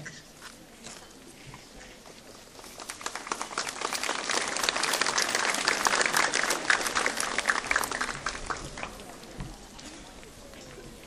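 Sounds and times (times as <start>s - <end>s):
audience applauding: 2.5s - 9.3s.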